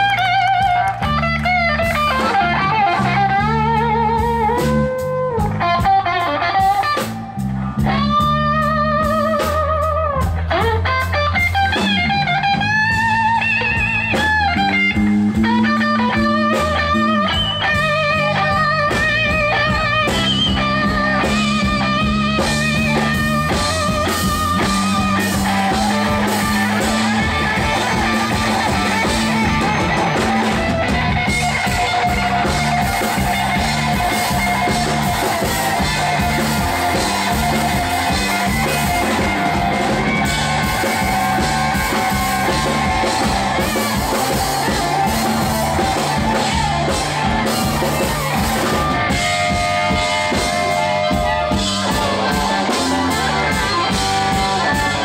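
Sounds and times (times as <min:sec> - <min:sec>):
drum kit: 0:00.0 - 0:55.0
electric bass: 0:00.0 - 0:55.0
electric guitar solo: 0:00.0 - 0:55.0
harmonica through a microphone: 0:00.0 - 0:55.0.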